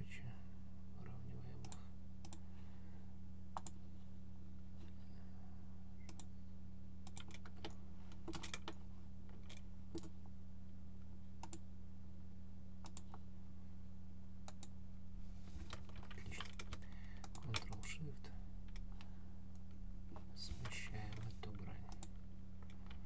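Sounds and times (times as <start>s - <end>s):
low electrical hum: 0.0s - 23.0s
mouse and keyboard clicks: 7.0s - 10.1s.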